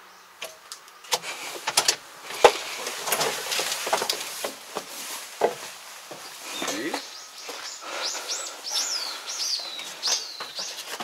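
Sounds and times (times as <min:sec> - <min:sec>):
handling clatter and rustling: 0:01.1 - 0:07.1, 0:09.6 - 0:11.0.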